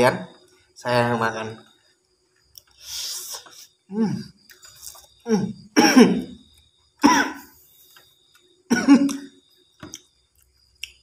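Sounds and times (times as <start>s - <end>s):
man coughing and clearing throat: 5.3s - 6.4s, 7.0s - 7.5s, 8.7s - 9.3s.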